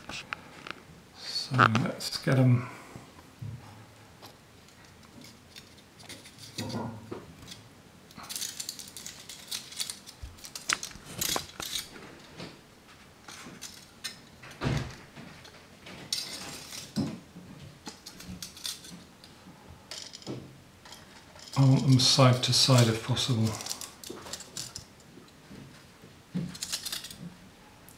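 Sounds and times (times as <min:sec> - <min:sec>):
aluminium foil crinkling: 0:08.2 - 0:12.4, 0:13.2 - 0:14.6, 0:15.4 - 0:17.0, 0:20.9 - 0:25.0, 0:26.5 - 0:27.3.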